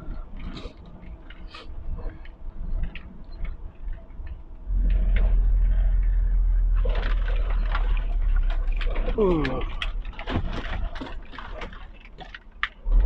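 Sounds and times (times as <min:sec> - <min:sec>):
truck engine rumble: 0:00.0 - 0:13.0
rattles and knocks in truck cab: 0:07.2 - 0:12.5.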